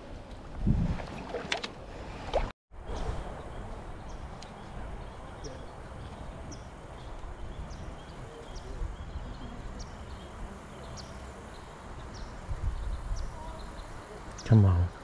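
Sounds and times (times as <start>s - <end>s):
wind buffeting microphone: 0.0s - 10.5s, 12.0s - 13.9s.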